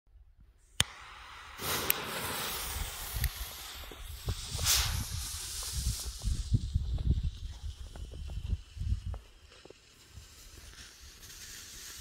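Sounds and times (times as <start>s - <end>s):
smoke flare hissing: 0.6s - 12.0s.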